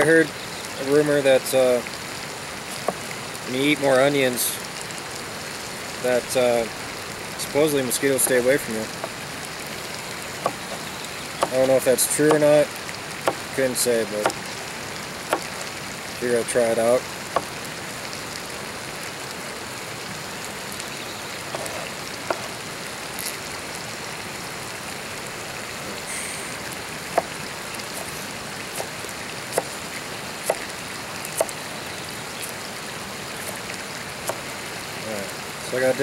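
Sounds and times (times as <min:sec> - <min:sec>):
steady hiss: 0:00.0 - 0:36.0
knife chopping on cutting board: 0:12.3 - 0:12.5.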